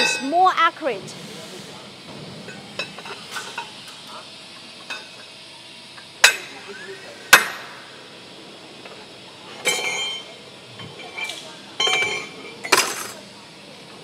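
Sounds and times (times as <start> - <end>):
loud sharp metal strikes: 7.3 - 7.9.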